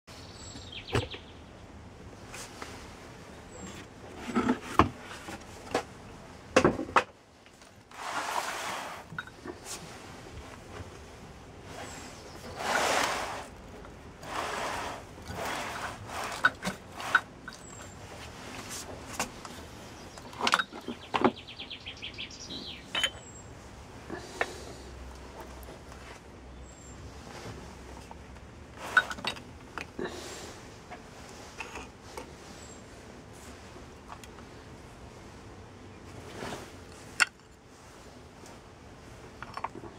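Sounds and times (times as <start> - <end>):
cardboard scraping rustles: 7.8 - 19.4, 36.1 - 37.1.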